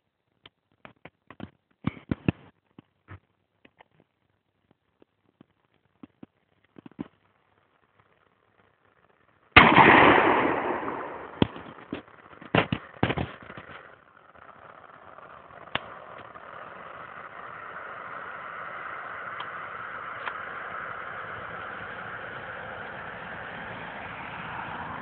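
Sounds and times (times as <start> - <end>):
shotgun blast: 9.6 - 12.8
steady rushing noise: 9.6 - 25.0.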